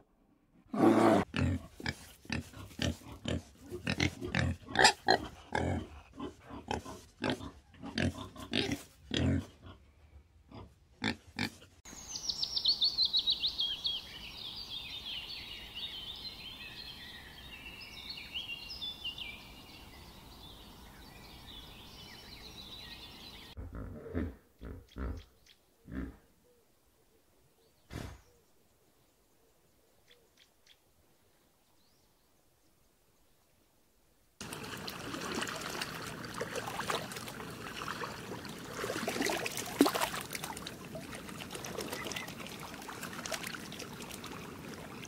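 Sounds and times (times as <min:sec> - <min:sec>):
water hissing: 0:34.4 - 0:45.0.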